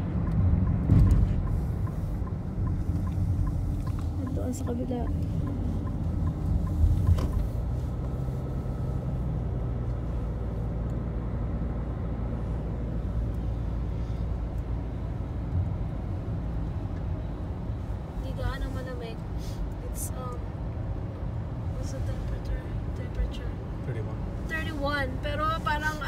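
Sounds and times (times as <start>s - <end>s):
car engine and tyres rumbling: 0.0s - 26.0s
car bump: 0.6s - 7.5s.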